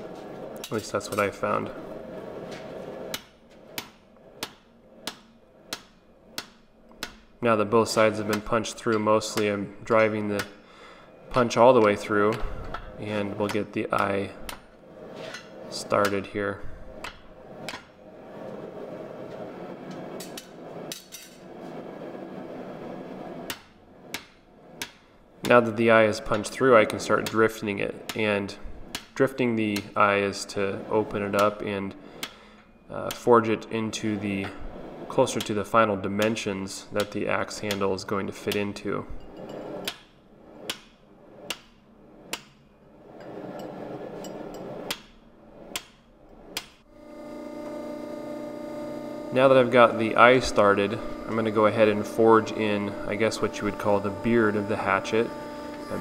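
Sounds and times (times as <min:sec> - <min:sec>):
steady machine hum: 0:00.0 - 0:56.0
hammer striking metal: 0:03.1 - 0:07.3.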